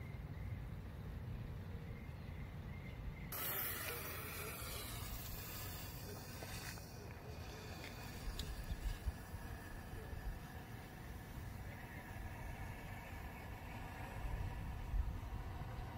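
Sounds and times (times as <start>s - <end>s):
firework fuse hissing: 3.3s - 11.3s.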